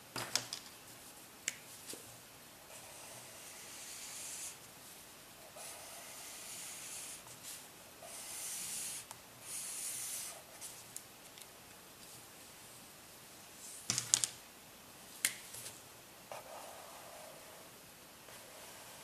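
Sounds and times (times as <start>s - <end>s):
marker rubbing on paper: 5.6s - 7.4s, 8.0s - 10.7s.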